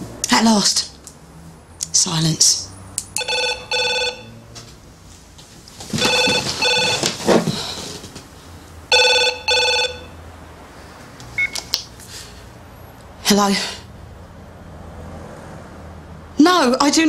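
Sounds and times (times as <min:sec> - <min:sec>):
phone ringing electronic trill: 0:03.2 - 0:04.4, 0:06.0 - 0:07.1, 0:08.9 - 0:10.2
rustling: 0:04.6 - 0:08.6.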